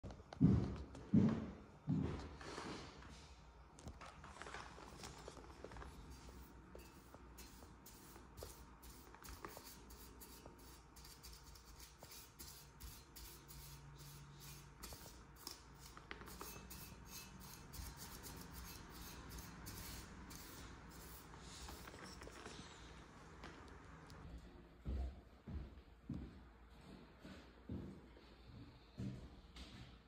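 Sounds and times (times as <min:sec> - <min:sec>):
paintbrush swishing on hard surface: 0:04.9 - 0:23.0.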